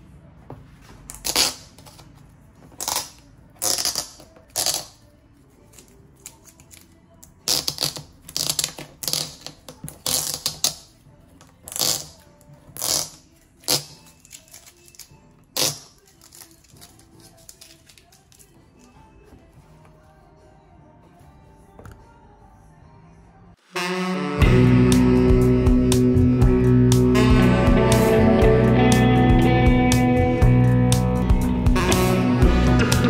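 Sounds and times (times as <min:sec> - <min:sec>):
plastic wrap and paper crinkling: 0:15.9 - 0:18.8.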